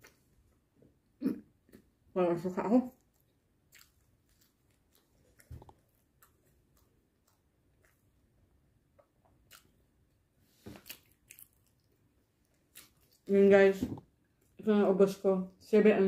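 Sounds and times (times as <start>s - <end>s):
chewing bread: 2.9s - 13.4s.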